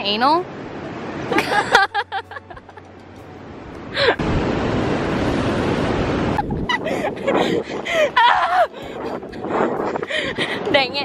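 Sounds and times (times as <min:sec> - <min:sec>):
wind buffeting microphone: 0:03.6 - 0:11.0
person laughing: 0:06.4 - 0:10.4.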